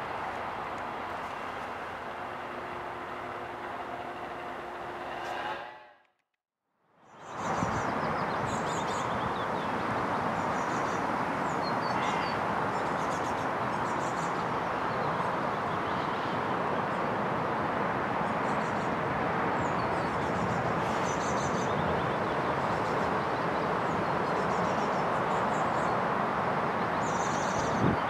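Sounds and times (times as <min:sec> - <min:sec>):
steady rushing noise: 0:00.0 - 0:06.1.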